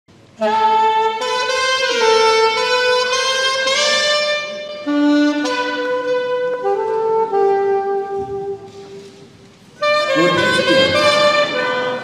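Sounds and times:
saxophone melody: 0.2 - 12.0
pitched notes beneath: 9.8 - 12.0.

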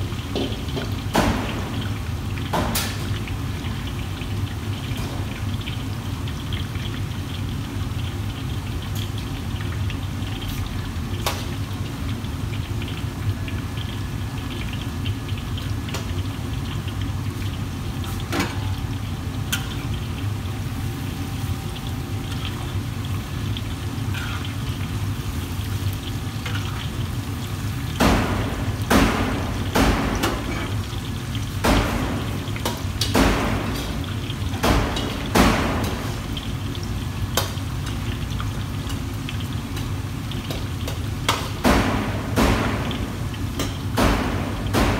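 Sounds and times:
metal ladle scraping a wok: 24.1 - 24.5.

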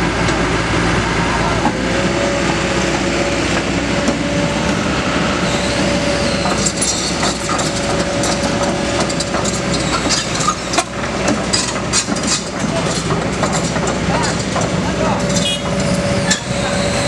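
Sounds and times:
diesel engine running with whine: 0.0 - 17.0
track links clanking and rattling: 5.4 - 17.0.

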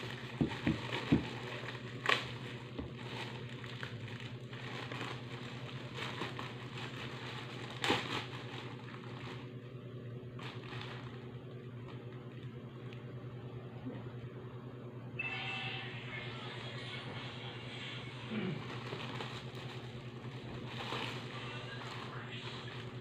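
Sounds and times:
rustling: 0.0 - 9.5, 18.6 - 23.0
steady low hum: 0.0 - 23.0.

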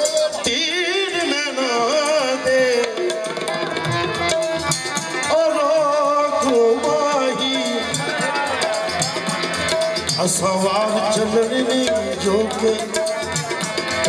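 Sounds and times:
man singing wordlessly: 0.0 - 3.5, 5.1 - 9.2, 10.1 - 13.6
tabla drumming: 0.0 - 14.0.

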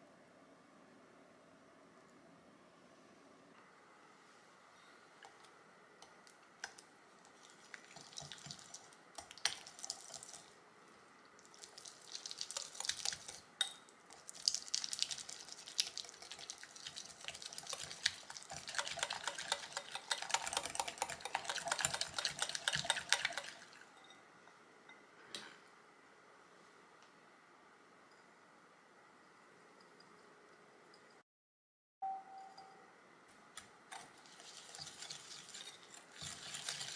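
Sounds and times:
wire whisk clicking against glass bowl: 18.6 - 23.6.

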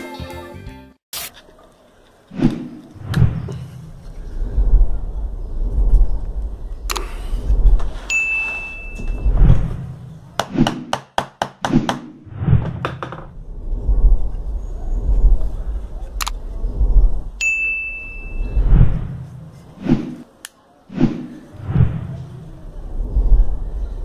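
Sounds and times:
steady low rumble: 2.7 - 10.4, 12.3 - 20.2, 21.4 - 24.0
sharp clicks: 6.8 - 7.1, 16.2 - 16.4
short high ding: 8.1 - 9.2, 17.4 - 18.5.

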